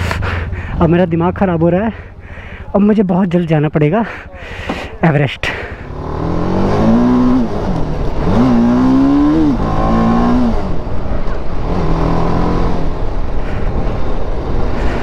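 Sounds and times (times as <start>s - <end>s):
steady rush of noise: 0.0s - 15.0s
motorcycle engine revving: 5.7s - 15.0s.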